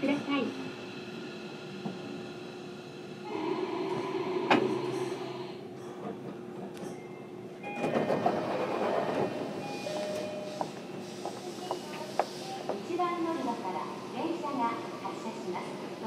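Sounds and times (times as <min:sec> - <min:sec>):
train doors sliding shut: 0:04.4 - 0:06.4, 0:07.6 - 0:12.8
train hiss and rattle: 0:09.8 - 0:16.0.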